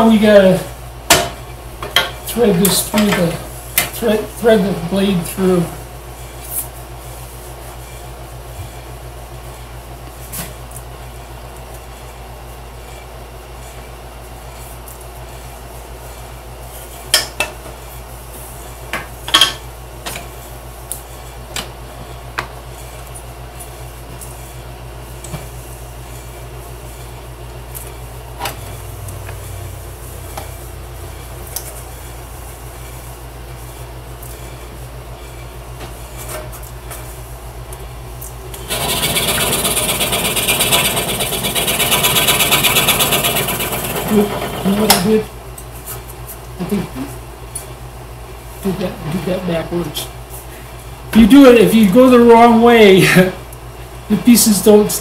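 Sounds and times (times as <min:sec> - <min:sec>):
low hum: 0:27.8 - 0:33.0.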